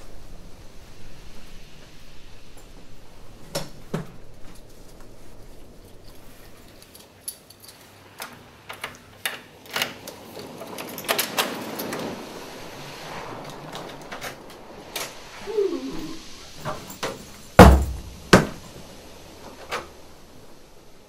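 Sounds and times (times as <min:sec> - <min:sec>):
keys rattling in a lock: 0:06.7 - 0:09.0.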